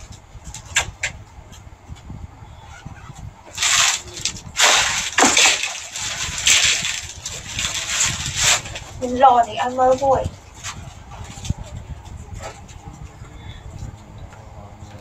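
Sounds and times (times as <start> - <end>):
clothes rustling: 2.7 - 13.1.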